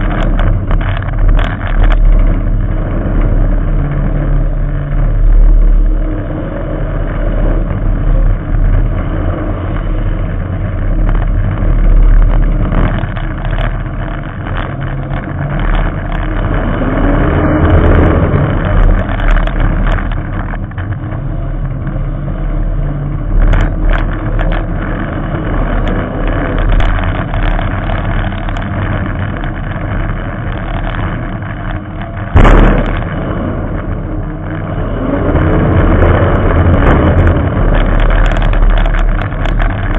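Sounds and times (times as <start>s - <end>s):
race car engine revving: 0.0s - 39.9s
sharp loud bang: 32.4s - 33.6s.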